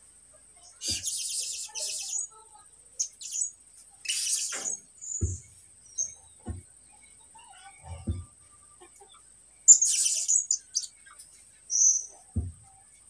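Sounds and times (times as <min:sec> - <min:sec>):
songbird chirping: 0:00.0 - 0:13.0
dull thumps: 0:04.4 - 0:05.6, 0:06.4 - 0:06.7, 0:07.8 - 0:08.4.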